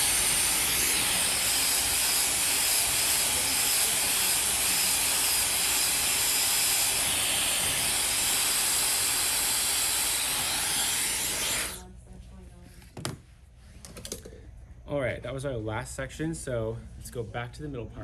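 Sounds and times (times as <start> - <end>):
hair dryer blowing: 0.0 - 11.8.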